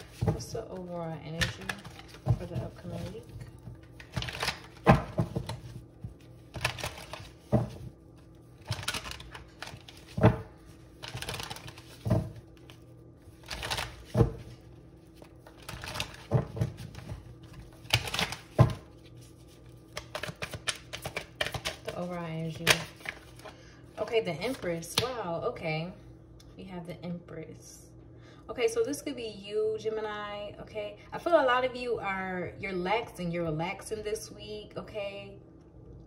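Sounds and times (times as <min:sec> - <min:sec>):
cards rustling: 0:00.0 - 0:25.1
cards slapping and knocking: 0:01.4 - 0:08.0, 0:08.6 - 0:23.5.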